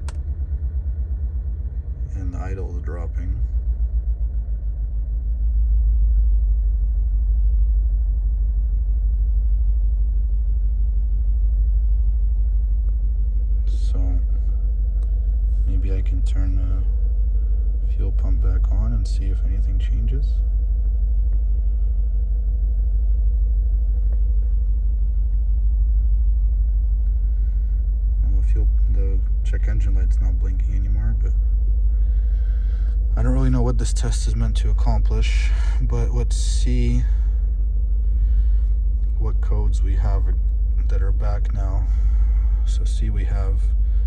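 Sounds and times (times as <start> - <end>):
car engine idling unevenly: 27.1 - 44.0.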